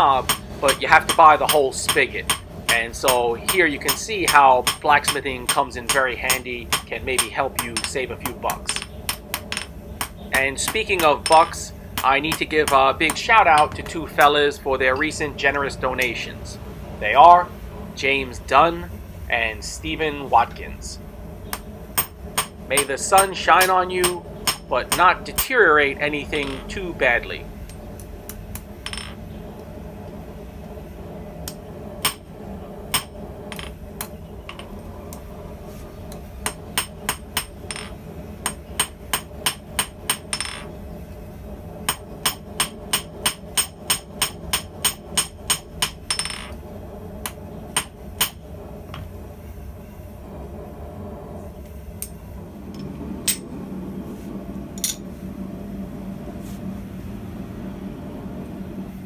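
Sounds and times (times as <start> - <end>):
hammer striking steel on anvil: 0.0 - 13.9, 21.5 - 25.6, 26.4 - 26.8, 32.9 - 33.8, 36.4 - 40.7, 41.9 - 46.6, 47.8 - 48.4
steady low hum: 0.0 - 59.0.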